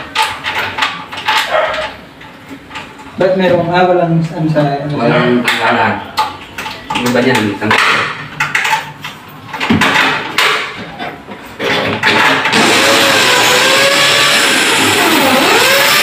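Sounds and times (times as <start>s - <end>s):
electric drill drilling metal: 12.4s - 16.0s.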